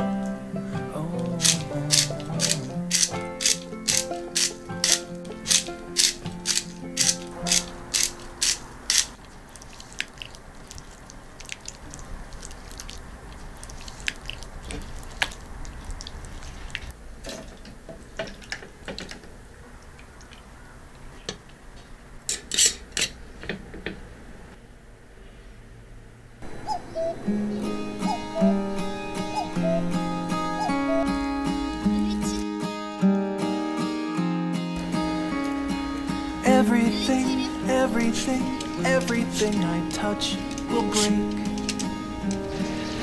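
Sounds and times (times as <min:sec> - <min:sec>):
acoustic guitar music: 0:00.0 - 0:09.2, 0:26.4 - 0:43.0
sharp clicks and taps: 0:01.4 - 0:09.2, 0:40.4 - 0:42.5.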